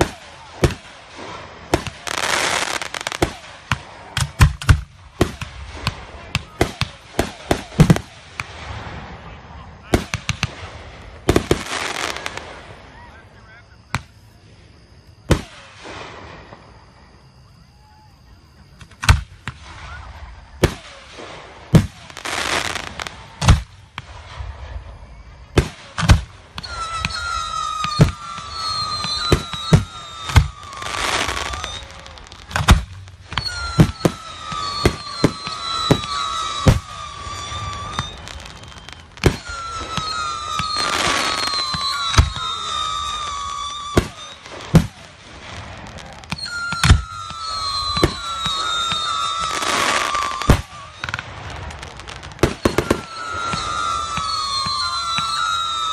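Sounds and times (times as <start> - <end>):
fireworks bangs: 0.0 - 55.9
fireworks hissing and crackling: 0.0 - 55.9
falling wavering whistle: 1.2 - 3.6, 11.4 - 21.4, 26.5 - 45.1, 45.8 - 55.9.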